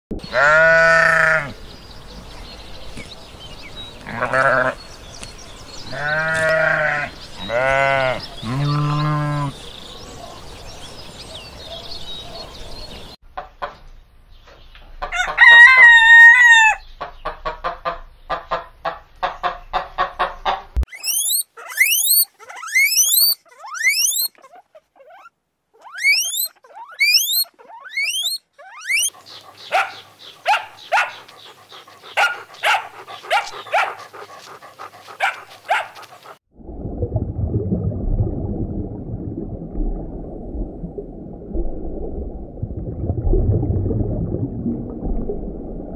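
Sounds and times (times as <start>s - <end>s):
sheep bleating: 0.3s - 1.6s, 4.1s - 4.8s, 5.9s - 9.6s
rooster crowing: 15.1s - 16.8s
high rising chirps: 20.9s - 24.3s, 26.0s - 29.1s.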